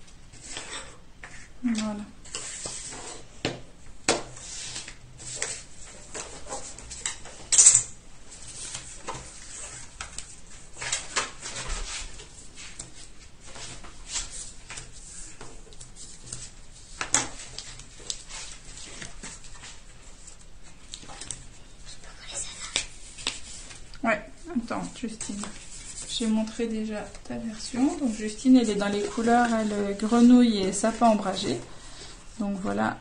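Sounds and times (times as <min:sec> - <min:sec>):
cardstock rustling: 0:25.0 - 0:31.6.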